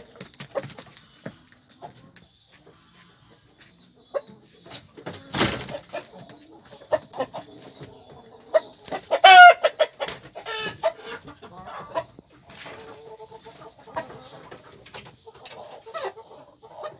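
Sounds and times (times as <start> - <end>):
chickens clucking: 0.0 - 16.9
loud pitched chicken call: 9.1 - 9.8.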